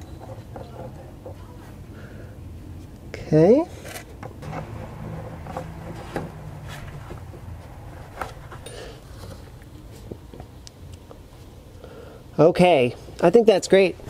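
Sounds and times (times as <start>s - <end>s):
low steady hum: 4.4s - 12.3s.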